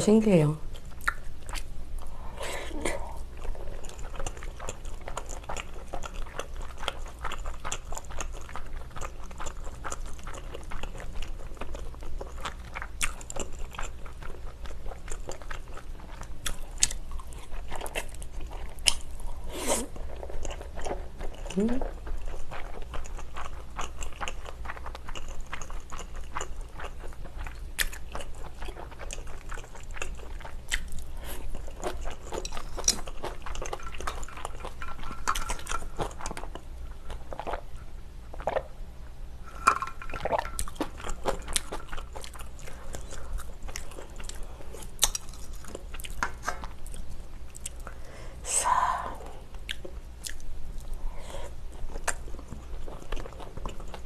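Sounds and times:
wet chewing mouth noises: 0.7 - 2.1.

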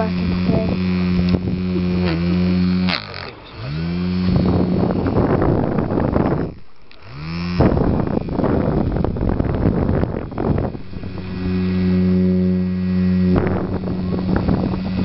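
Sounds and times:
small fan motor humming: 0.0 - 15.0
air rush on microphone: 3.6 - 15.0.

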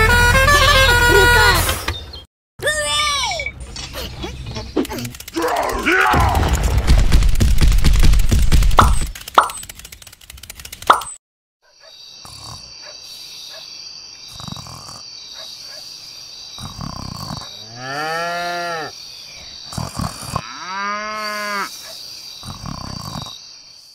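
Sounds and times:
cow mooing: 17.4 - 18.9, 20.4 - 21.7.

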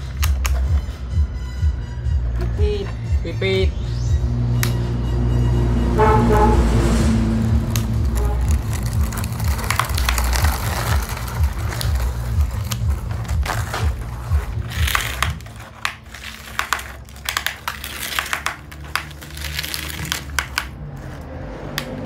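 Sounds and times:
low rumble: 0.7 - 22.0
toy vehicles scraping through dirt: 7.4 - 22.0.

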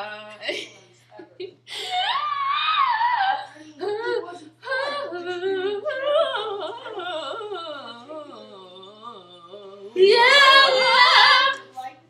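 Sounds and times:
high voice singing without words: 2.3 - 11.9.

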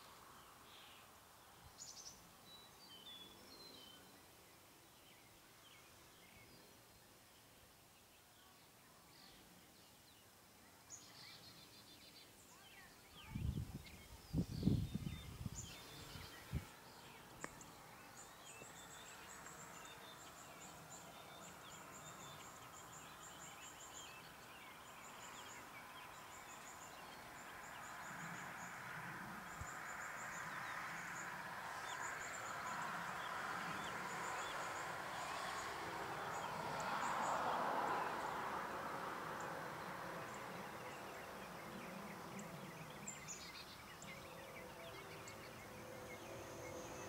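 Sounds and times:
birds chirping: 10.9 - 47.0.

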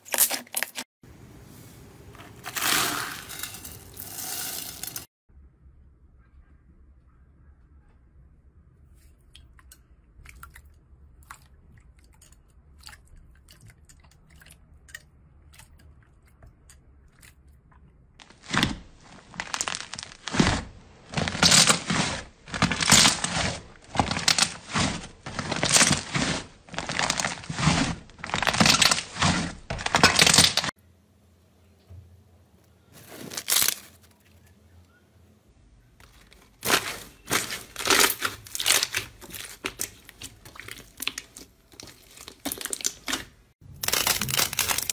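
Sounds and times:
slime squelching: 9.0 - 30.7, 36.0 - 44.9.

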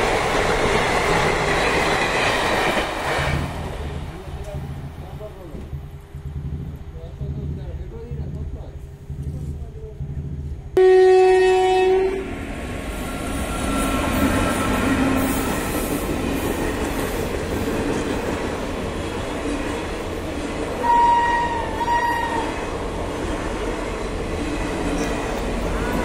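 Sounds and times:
train coaches rumbling and clattering: 0.0 - 10.8, 12.3 - 26.0
loud train horn: 10.8 - 12.4, 20.8 - 22.6
higher train horn: 10.8 - 15.9, 20.8 - 22.7.

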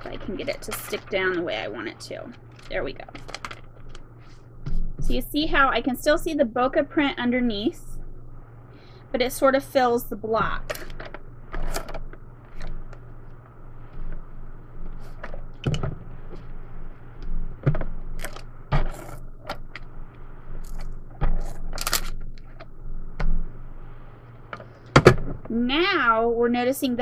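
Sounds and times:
plastic items clicking and tapping: 2.6 - 4.1.

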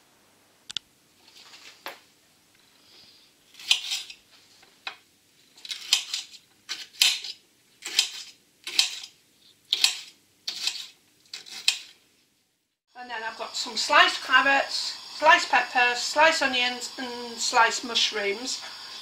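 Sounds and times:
knife cutting on glass board: 3.6 - 4.1, 5.6 - 12.0.

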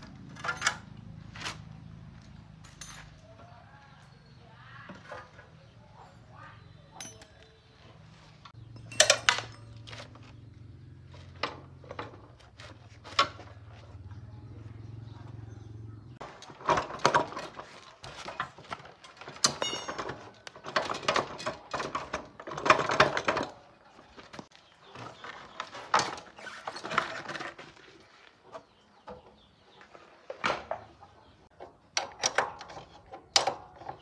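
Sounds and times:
metal tools clinking and scraping: 0.1 - 4.2, 6.9 - 10.5, 16.4 - 23.6.

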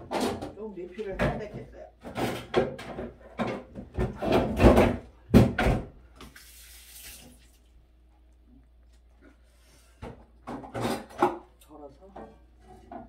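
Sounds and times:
faucet water splashing into sink: 6.2 - 7.7.

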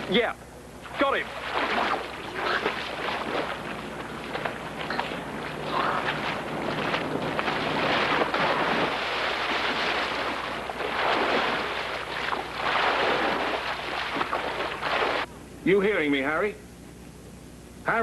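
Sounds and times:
water splashing and churning: 0.8 - 15.3.

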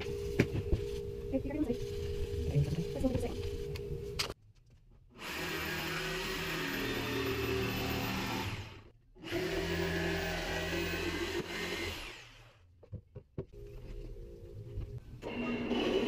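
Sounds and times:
jigsaw cutting plywood: 5.2 - 12.6, 15.2 - 16.0.

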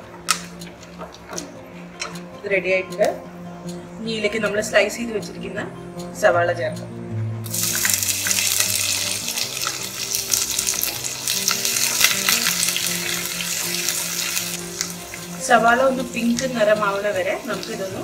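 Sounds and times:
onions sizzling in hot oil: 7.4 - 18.0.

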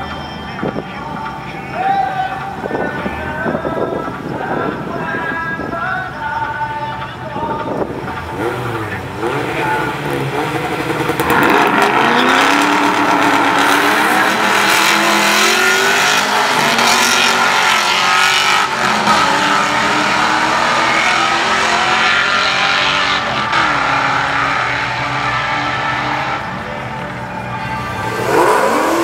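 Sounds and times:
car engines revving hard: 7.6 - 29.0.

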